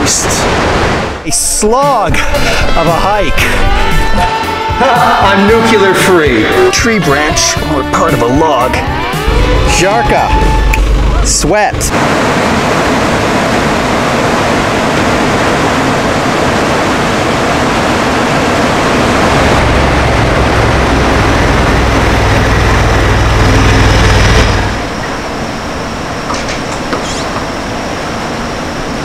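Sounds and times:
utility vehicle engine humming: 0:02.1 - 0:29.0
river rapids rushing: 0:10.6 - 0:25.0.

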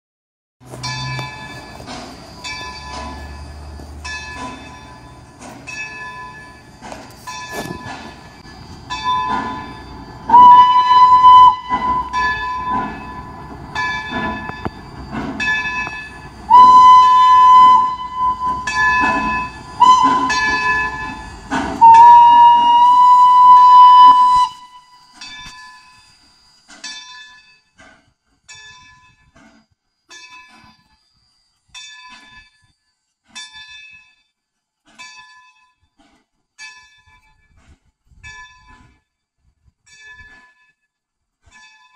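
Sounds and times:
locomotive bell ringing: 0:00.6 - 0:26.2, 0:26.8 - 0:27.8, 0:28.4 - 0:29.3, 0:30.1 - 0:30.9, 0:31.8 - 0:32.6, 0:33.4 - 0:34.2, 0:35.0 - 0:35.8, 0:36.6 - 0:37.4, 0:38.2 - 0:38.9, 0:39.8 - 0:40.9, 0:41.5 - 0:41.9
train horn blasts: 0:10.3 - 0:13.2, 0:16.5 - 0:24.9.

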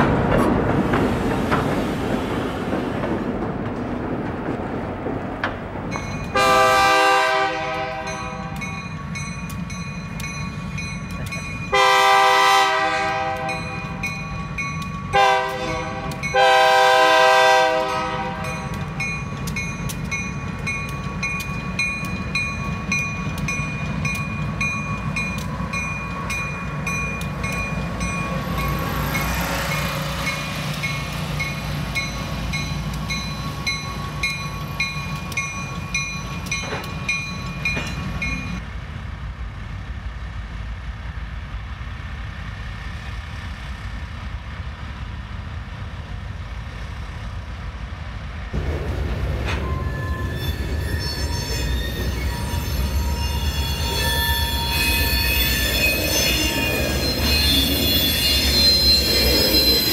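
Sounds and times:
diesel locomotive engine drone: 0:00.0 - 0:59.9
locomotive bell ringing: 0:05.9 - 0:06.6, 0:07.8 - 0:12.2, 0:13.4 - 0:16.8, 0:17.5 - 0:38.6, 0:49.4 - 0:59.9
train wheels squealing on rails: 0:08.0 - 0:38.7, 0:49.2 - 0:59.9.

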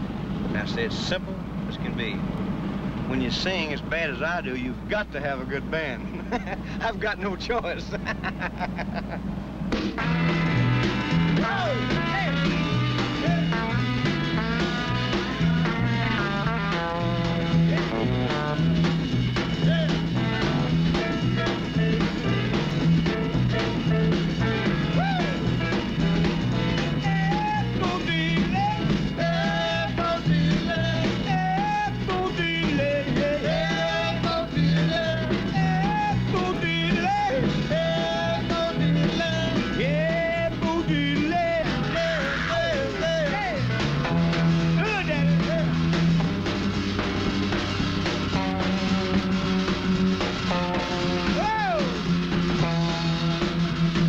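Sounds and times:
walking bass line: 0:07.9 - 0:54.0
steady drum beat: 0:09.6 - 0:54.0
person singing: 0:27.0 - 0:43.7.

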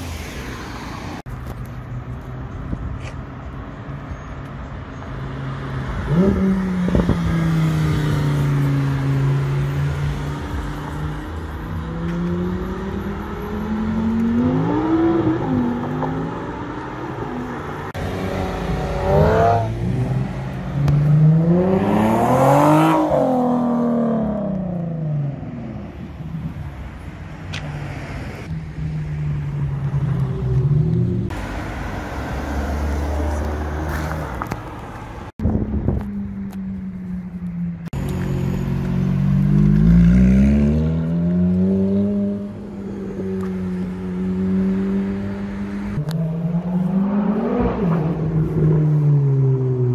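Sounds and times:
traffic noise: 0:00.0 - 0:49.9
car engines accelerating hard: 0:05.3 - 0:25.6, 0:37.9 - 0:49.9.

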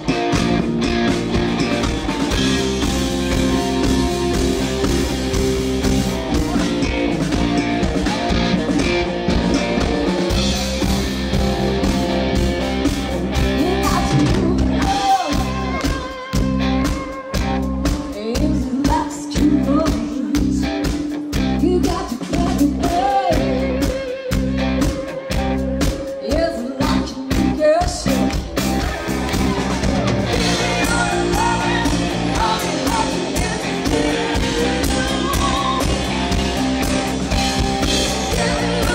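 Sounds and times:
live rock band playing: 0:00.0 - 0:38.9
woman singing: 0:13.6 - 0:24.3, 0:26.2 - 0:28.4, 0:30.3 - 0:38.9.

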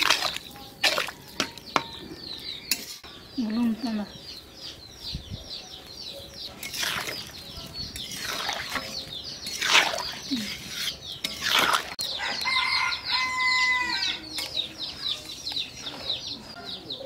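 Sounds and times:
small birds twittering: 0:00.0 - 0:17.0
rooster crowing: 0:12.2 - 0:14.3.

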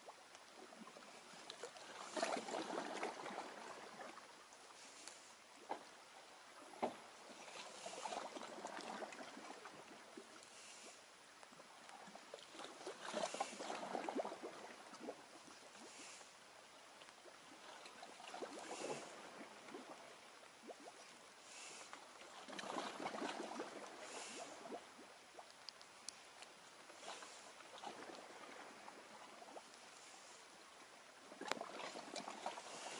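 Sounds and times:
small waves lapping: 0:00.0 - 0:32.9
faint clicks: 0:04.9 - 0:05.9, 0:10.4 - 0:12.5, 0:25.4 - 0:27.3, 0:29.6 - 0:30.0.

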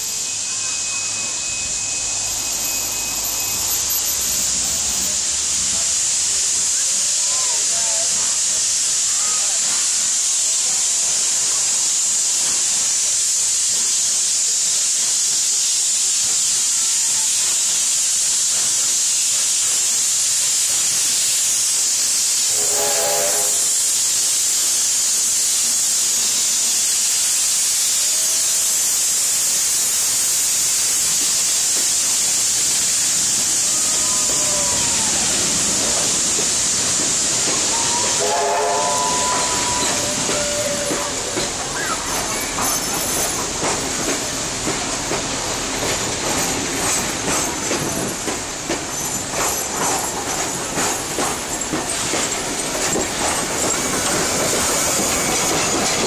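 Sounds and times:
steady high steam hiss: 0:00.0 - 0:56.0
train carriages rumbling past: 0:22.1 - 0:24.4, 0:30.5 - 0:56.0
steam locomotive whistle: 0:22.4 - 0:24.1, 0:37.6 - 0:42.1.

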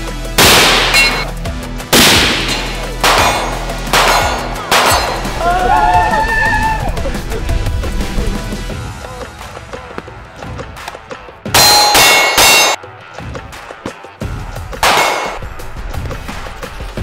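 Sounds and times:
bullets clanging on steel targets: 0:00.4 - 0:01.3, 0:02.2 - 0:05.3, 0:11.5 - 0:12.8, 0:14.8 - 0:15.4.

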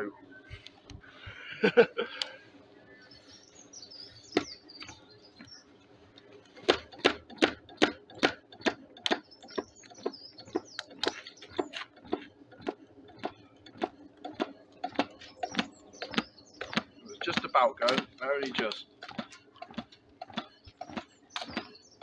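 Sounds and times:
engine knocking: 0:06.6 - 0:21.7.

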